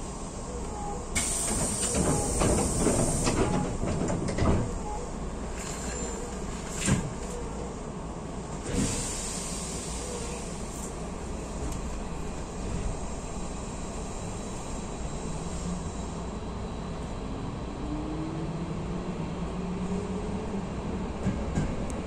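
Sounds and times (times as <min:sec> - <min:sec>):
train rumbling on rails: 0:00.0 - 0:22.0
hiss: 0:01.2 - 0:03.7, 0:08.6 - 0:11.0.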